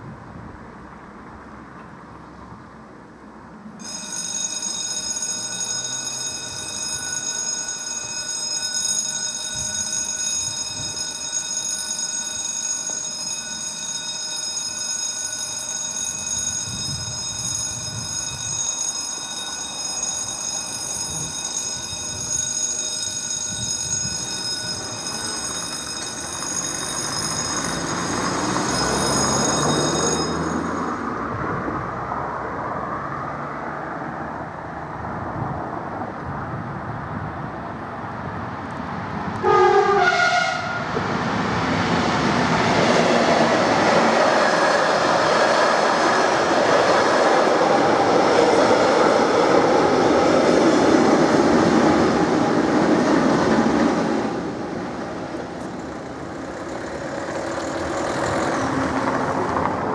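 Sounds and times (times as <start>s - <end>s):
level crossing bell ringing: 3.8s - 31.2s.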